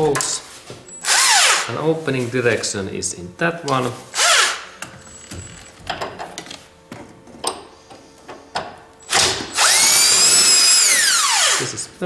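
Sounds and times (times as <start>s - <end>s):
impact wrench burst: 1.0s - 1.7s, 4.1s - 4.7s, 9.0s - 11.8s.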